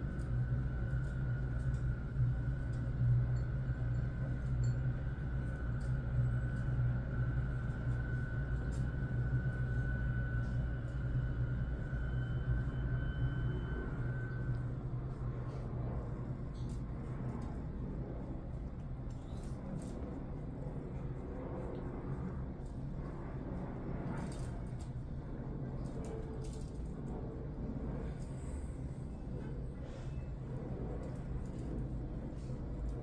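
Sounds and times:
faint high whine: 0.0 - 20.3
low mechanical hum: 0.0 - 33.0.

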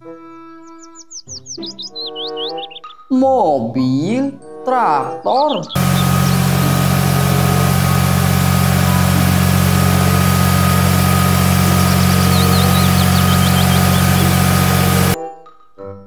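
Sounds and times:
tractor diesel engine running: 5.8 - 15.2.

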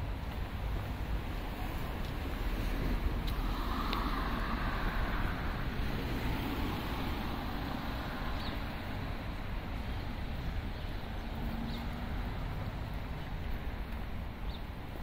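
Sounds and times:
low traffic rumble: 0.0 - 15.0
car passing by: 1.4 - 9.9.

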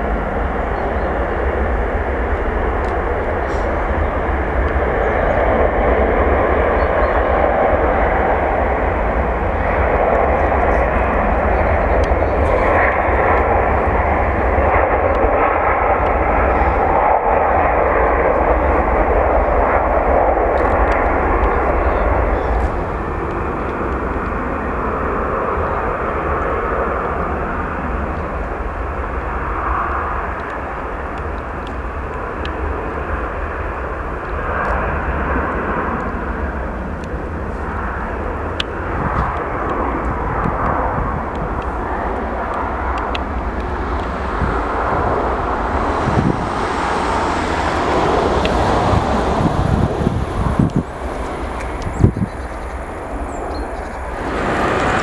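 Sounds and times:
jet engines roaring: 0.0 - 55.0.

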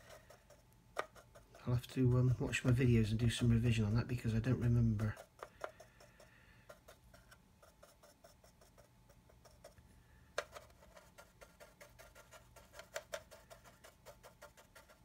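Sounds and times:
paintbrush tapping on plastic: 0.0 - 1.7, 4.6 - 9.8, 10.4 - 15.0.

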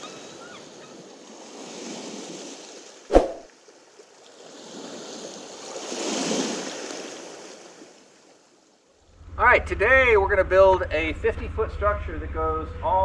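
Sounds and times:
waves washing in: 1.0 - 8.2
sharp deep thump: 3.1 - 3.5.

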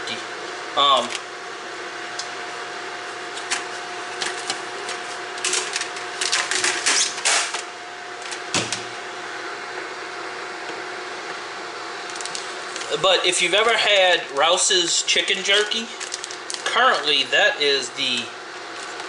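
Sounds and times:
fan motor humming: 0.0 - 19.0.

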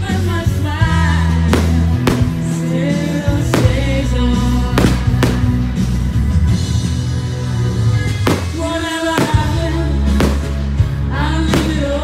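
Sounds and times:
person singing: 0.0 - 5.6, 8.3 - 10.4, 11.0 - 12.0
sustained bass notes: 1.0 - 12.0.

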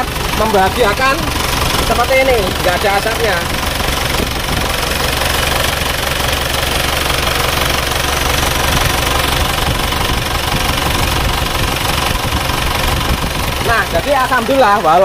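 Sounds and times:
diesel engine idling: 0.0 - 15.0.

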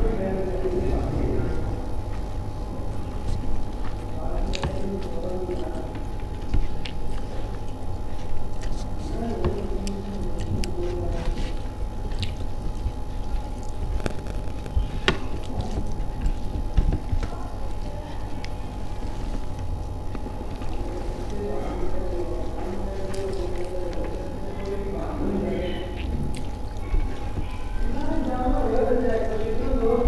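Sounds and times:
background hum: 0.0 - 30.0
person chewing: 2.1 - 29.4.

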